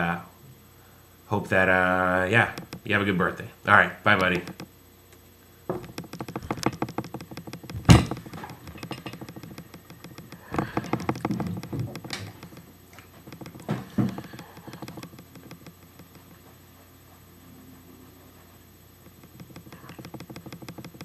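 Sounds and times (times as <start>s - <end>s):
microphone handling taps and clicks: 4.2s - 4.7s, 5.7s - 16.2s
handling knocks: 5.7s - 12.7s, 13.3s - 16.0s.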